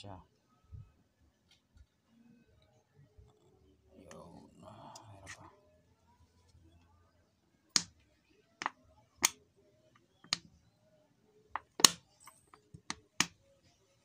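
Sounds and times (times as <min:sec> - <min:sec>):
shock absorber clicks and knocks: 0:07.7 - 0:08.0, 0:10.0 - 0:10.5, 0:11.6 - 0:13.4.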